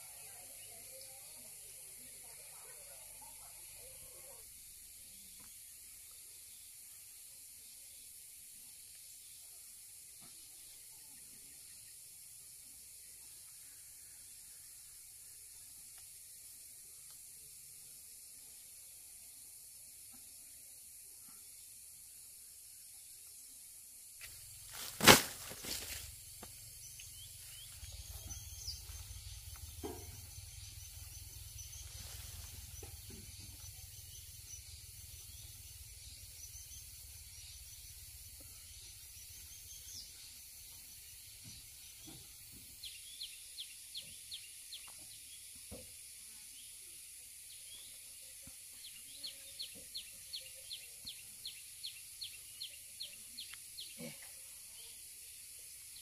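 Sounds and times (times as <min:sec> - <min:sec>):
birds chirping: 0:24.4 - 0:42.2.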